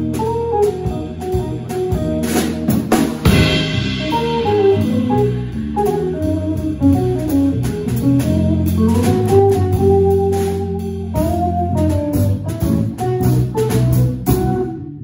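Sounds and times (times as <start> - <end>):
electric bass notes: 0.0 - 15.0
electric guitar melody: 0.0 - 15.0
light cymbal and drum strokes: 0.1 - 11.4.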